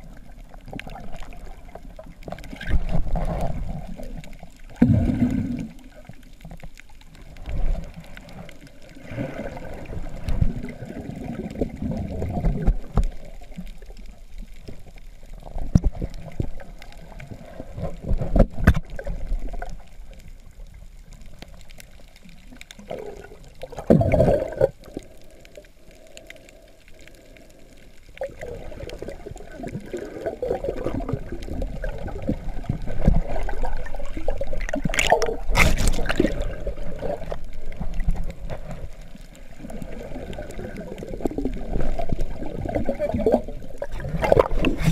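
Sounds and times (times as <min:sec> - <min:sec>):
underwater sloshing and gurgling: 0:00.0 - 0:44.9.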